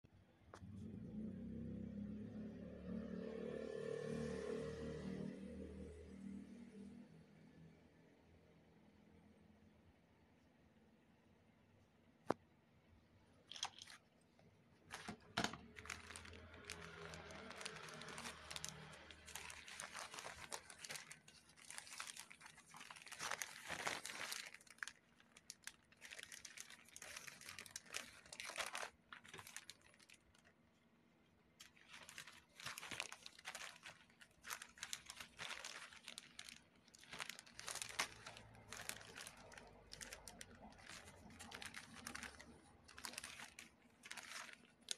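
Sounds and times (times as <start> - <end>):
plastic bag crinkling: 13.4 - 14.2, 14.8 - 30.8, 31.5 - 44.9.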